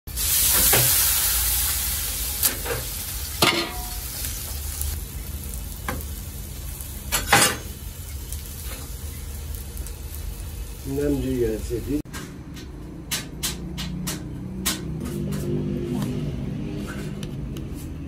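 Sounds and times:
meat sizzling on a steel pan: 0.1 - 12.0.

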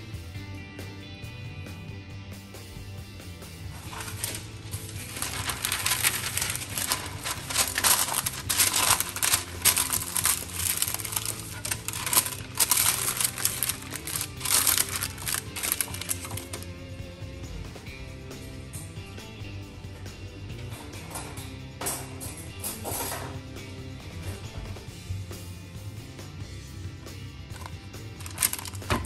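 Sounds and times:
background music: 0.0 - 29.0
parchment paper crinkling: 3.7 - 16.7, 27.6 - 29.0.

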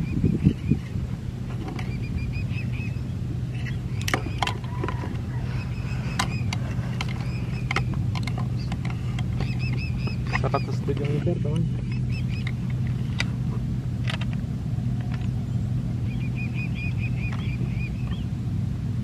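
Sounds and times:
small engine humming: 0.0 - 19.0
bird chirping: 1.8 - 13.1, 15.4 - 18.4.

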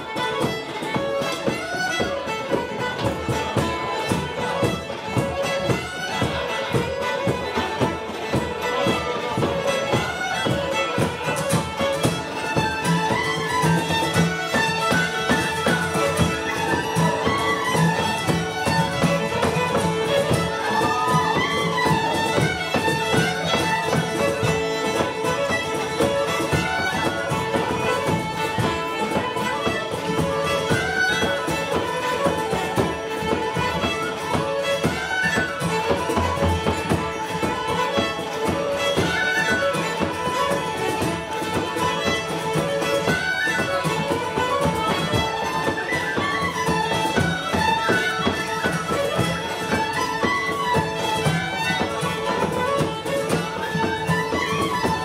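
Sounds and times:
fiddles playing fast melody: 0.0 - 55.0
tin whistles: 44.8 - 51.1.

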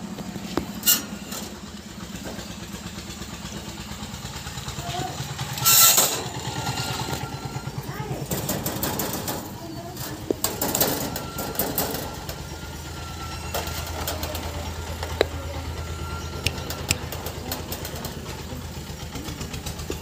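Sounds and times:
low mechanical motor hum: 0.0 - 20.0
clicks and rattles: 5.6 - 12.4, 16.4 - 20.0.

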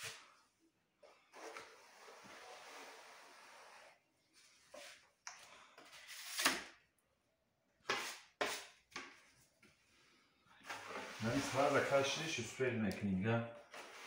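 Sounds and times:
putty knife scraping wall: 1.2 - 4.0, 10.6 - 12.1.

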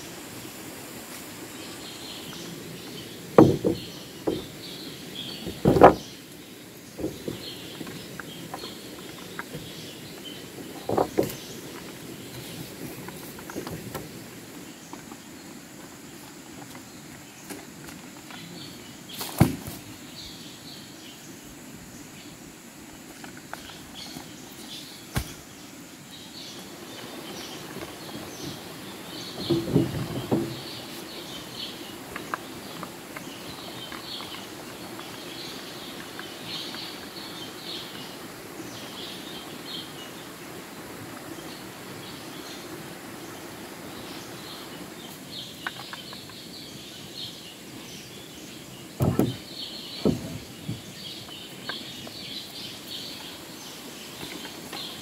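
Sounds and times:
birds chirping: 0.0 - 55.0
loud knocks: 3.3 - 4.6, 5.4 - 6.1, 29.4 - 30.7, 49.0 - 50.8.

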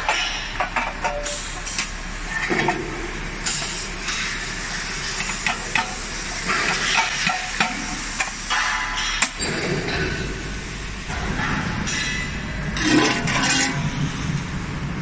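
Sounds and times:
steady hiss: 3.4 - 9.2.

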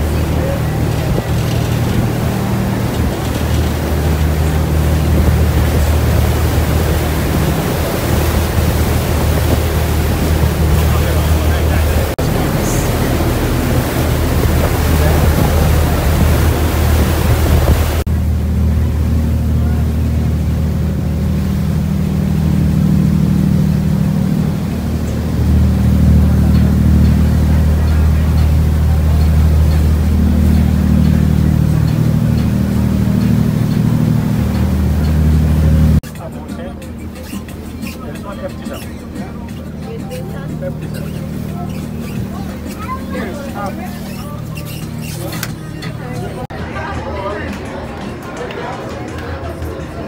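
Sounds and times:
wind buffeting microphone: 0.0 - 18.6
boat engine humming: 0.0 - 50.0
churned water rushing: 0.0 - 50.0.

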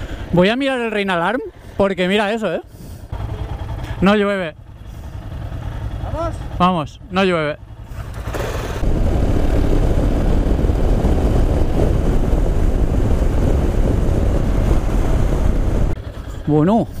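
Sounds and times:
motorcycle engine: 2.8 - 17.0
wind rumble on microphone: 8.8 - 17.0.

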